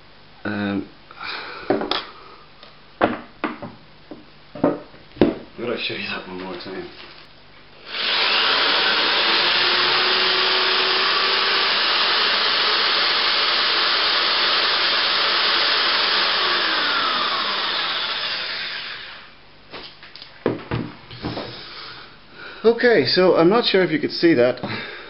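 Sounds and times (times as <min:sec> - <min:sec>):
power drill whirring: 0:07.8 - 0:19.3.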